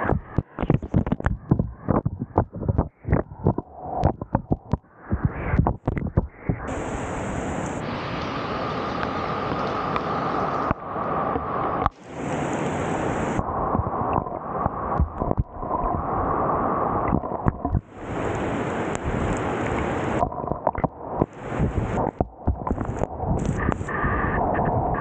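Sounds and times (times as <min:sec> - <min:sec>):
heavy rain: 0:06.7 - 0:24.6
water rushing over concrete: 0:06.7 - 0:24.7
water splashes and drops: 0:07.5 - 0:23.8.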